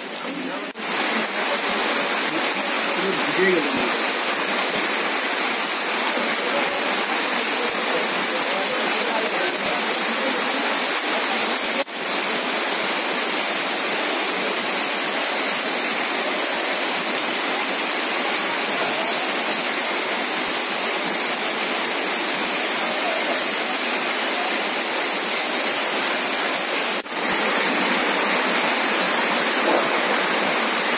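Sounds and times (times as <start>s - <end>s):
heavy rain pouring: 0.0s - 30.9s.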